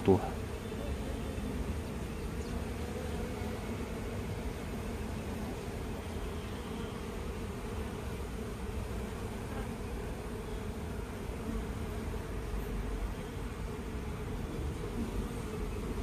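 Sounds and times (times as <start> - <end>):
honeybees buzzing: 0.0 - 16.0.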